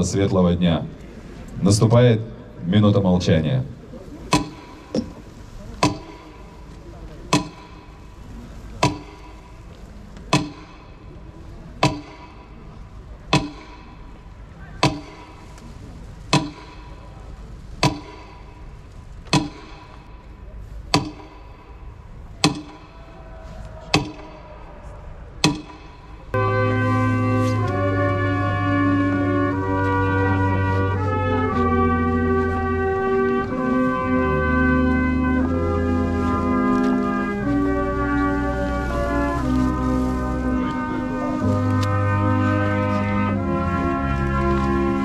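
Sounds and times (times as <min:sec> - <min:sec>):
metronome ticking: 0:04.3 - 0:04.8, 0:05.8 - 0:06.3, 0:07.3 - 0:07.8, 0:08.8 - 0:09.3, 0:10.3 - 0:10.8, 0:11.8 - 0:12.3.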